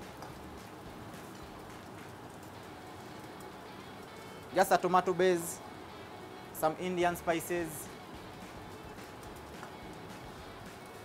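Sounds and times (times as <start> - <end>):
cheese frying sizzle: 0.0 - 11.0.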